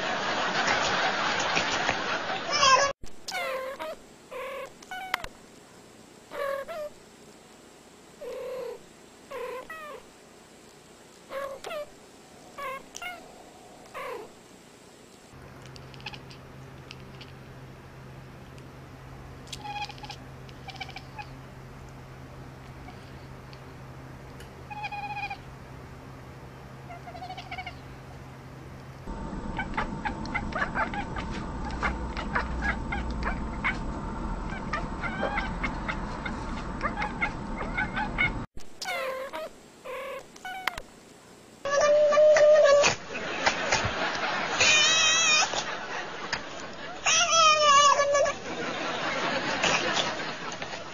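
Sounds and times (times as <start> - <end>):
steady background noise: 0.0 - 50.9
steady low hum: 4.0 - 38.6
cat meowing: 12.5 - 14.3, 24.7 - 25.4, 34.5 - 35.8, 36.8 - 40.8, 44.6 - 45.5.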